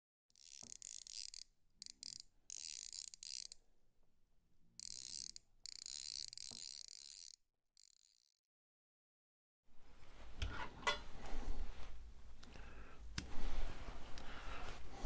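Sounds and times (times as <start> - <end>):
fly reel drag ratcheting: 0.3 - 3.6, 4.8 - 8.4.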